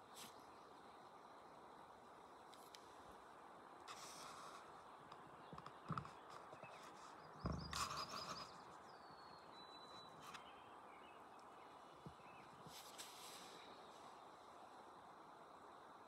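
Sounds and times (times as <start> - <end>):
faint bird chirps: 3.9 - 14.7.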